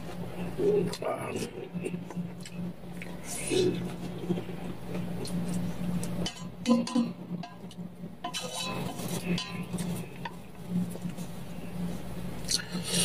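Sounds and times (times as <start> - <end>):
steady low hum: 0.0 - 13.0
chopsticks clinking on metal pot: 6.2 - 10.0.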